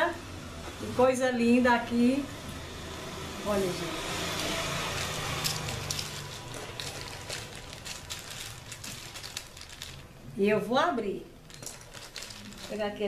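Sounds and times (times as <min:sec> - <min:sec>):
plastic wrapping crinkling: 0:04.2 - 0:10.3, 0:11.4 - 0:13.0.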